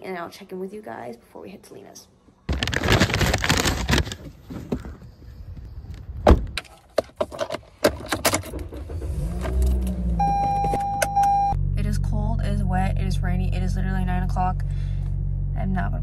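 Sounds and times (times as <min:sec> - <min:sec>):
handling and rustling: 0:02.5 - 0:05.3
car engine starting and running: 0:07.3 - 0:16.0.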